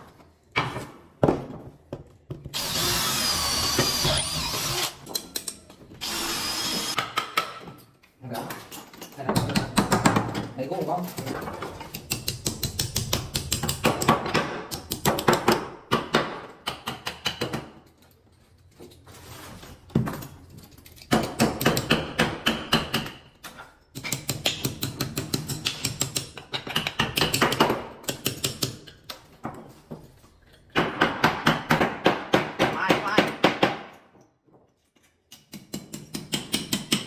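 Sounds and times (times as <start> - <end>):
hammer striking nails into wood: 12.0 - 17.7, 21.1 - 23.2, 30.7 - 34.0, 35.4 - 37.0.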